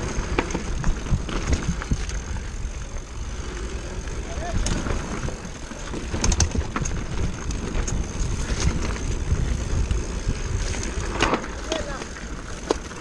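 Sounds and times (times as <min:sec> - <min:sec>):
bike rattling over stones: 0:00.0 - 0:13.0
tyres rumbling on dirt: 0:00.0 - 0:13.0
wind on microphone: 0:04.0 - 0:13.0.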